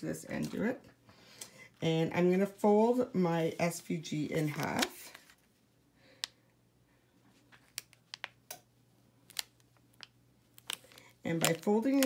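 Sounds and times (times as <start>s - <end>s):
plastic sheet clicking and crackling: 9.3s - 12.0s.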